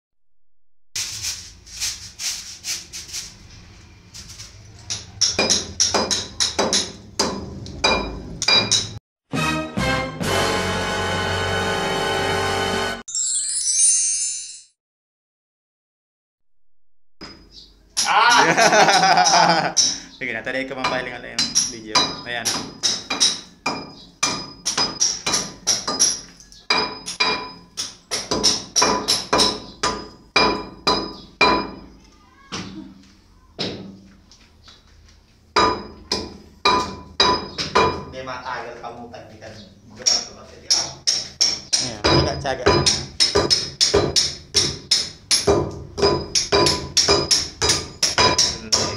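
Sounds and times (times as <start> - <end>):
hammer striking concrete: 4.9 - 9.0, 20.8 - 31.9, 35.6 - 38.1, 40.0 - 48.9.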